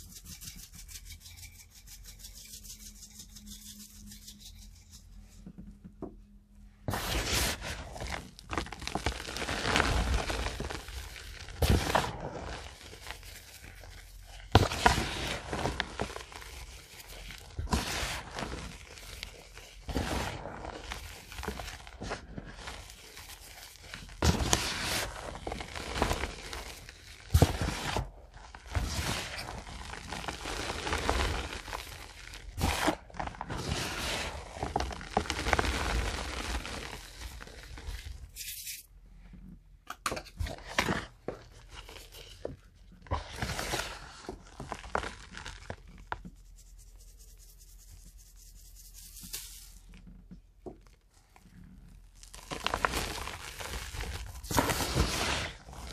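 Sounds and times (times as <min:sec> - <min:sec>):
hands crushing chalk blocks: 0:06.9 - 0:38.6, 0:52.3 - 0:55.9.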